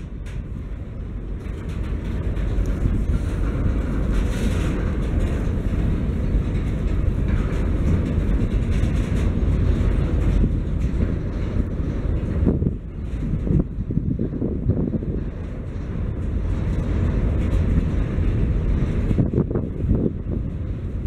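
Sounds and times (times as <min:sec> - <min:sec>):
train wheels rumbling on rails: 0:00.0 - 0:21.0
wheels clicking over rail joints: 0:00.0 - 0:21.0.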